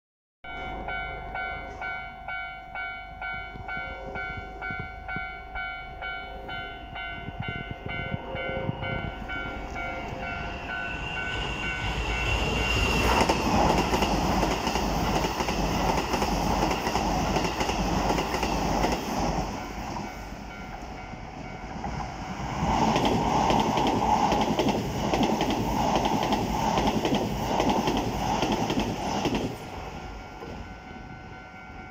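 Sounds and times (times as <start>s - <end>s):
level crossing alarm bell: 0.4s - 13.0s, 29.7s - 31.9s
train rumbling past: 0.5s - 31.9s.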